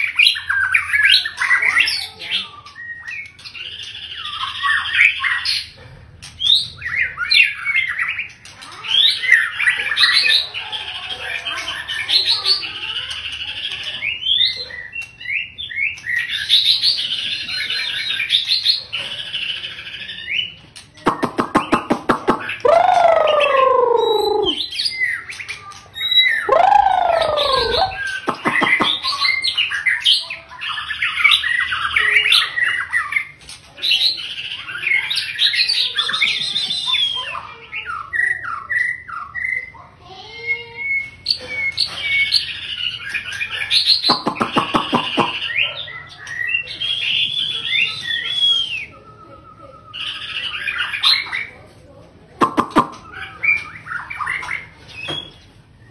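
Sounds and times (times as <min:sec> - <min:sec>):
bird singing whistled phrases: 0:20.0 - 0:25.4, 0:26.0 - 0:30.1, 0:35.3 - 0:39.7, 0:43.9 - 0:51.3
rapid burst of bird clicks: 0:21.0 - 0:22.7, 0:28.2 - 0:29.1, 0:44.0 - 0:45.4, 0:52.4 - 0:53.0.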